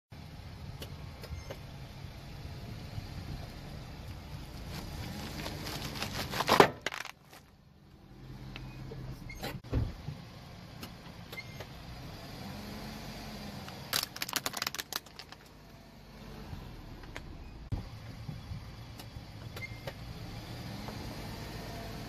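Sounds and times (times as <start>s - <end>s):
car engine humming: 0.2s - 22.0s
plastic ball cracking: 5.4s - 7.5s, 13.9s - 15.5s.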